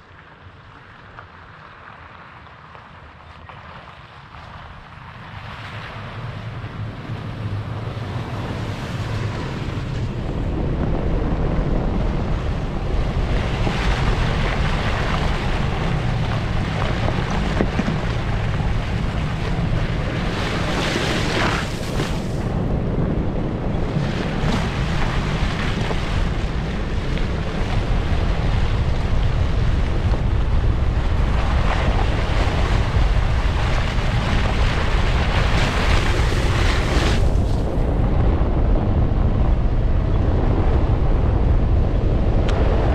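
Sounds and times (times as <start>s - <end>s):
car engine rumble: 0.0s - 42.9s.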